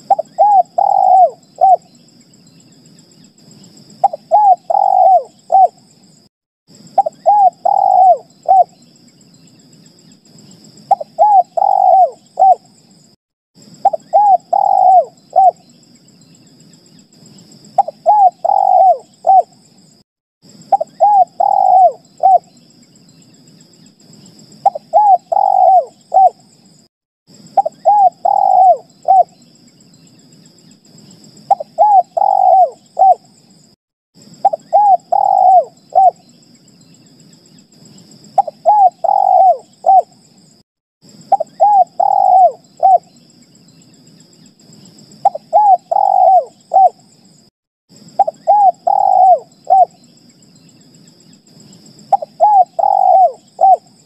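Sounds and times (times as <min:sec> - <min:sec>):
dove cooing: 0:00.0 - 0:01.8, 0:04.0 - 0:05.8, 0:07.0 - 0:08.7, 0:10.9 - 0:12.6, 0:13.8 - 0:15.6, 0:17.8 - 0:19.5, 0:20.7 - 0:22.5, 0:24.6 - 0:26.4, 0:27.6 - 0:29.3, 0:31.5 - 0:33.2, 0:34.4 - 0:36.2, 0:38.4 - 0:40.1, 0:41.3 - 0:43.1, 0:45.2 - 0:47.0, 0:48.2 - 0:50.0, 0:52.1 - 0:54.0.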